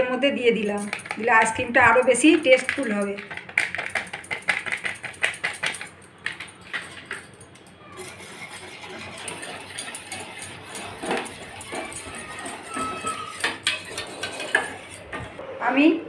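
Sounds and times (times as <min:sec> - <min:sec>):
whisk clinking against saucepan: 0:07.8 - 0:15.4
whisk swishing through milk: 0:08.0 - 0:15.4.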